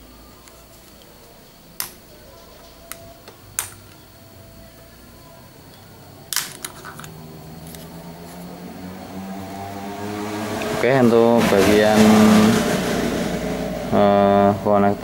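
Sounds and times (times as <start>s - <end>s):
plastic clicks and snaps: 2.9s - 4.0s.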